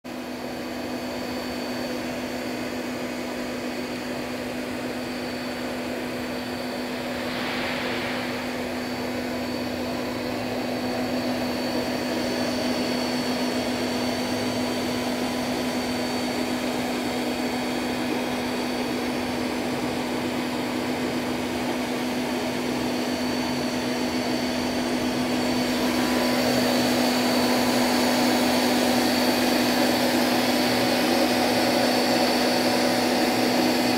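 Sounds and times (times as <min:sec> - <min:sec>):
machine humming with fan noise: 0:00.1 - 0:33.9
brief hiss: 0:07.0 - 0:09.8.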